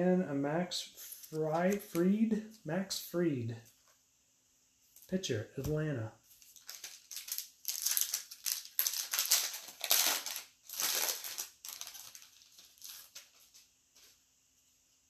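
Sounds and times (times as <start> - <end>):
foil wrapper crinkling: 6.3 - 14.2.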